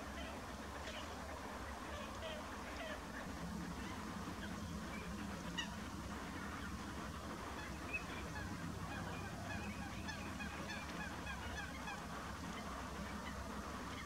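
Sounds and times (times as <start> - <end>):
low steady rumble: 0.0 - 14.0
ducks calling: 3.7 - 14.0.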